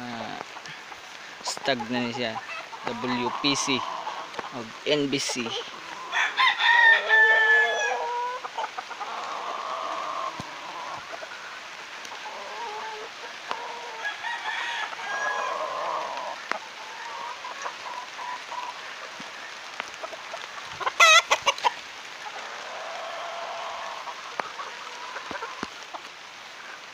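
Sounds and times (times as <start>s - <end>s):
roosters crowing: 2.2s - 4.6s, 5.2s - 18.8s, 20.8s - 25.7s.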